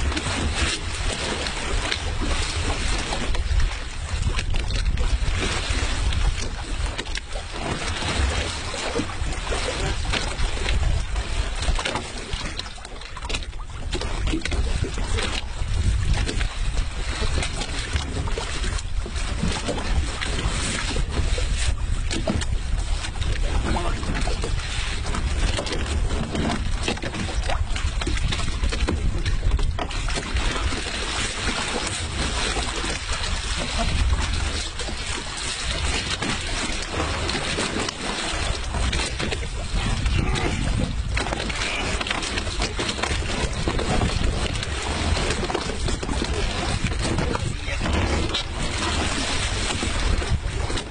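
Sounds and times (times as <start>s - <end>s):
boat engine rumble: 0.0s - 50.9s
wind on microphone: 0.0s - 50.9s
low rumble: 38.4s - 50.9s.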